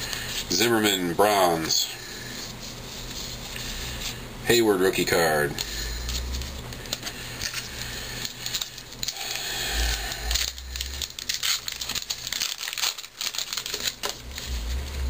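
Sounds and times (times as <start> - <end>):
card pack wrapper tearing: 5.6 - 15.0
wrapper crinkling: 5.6 - 15.0.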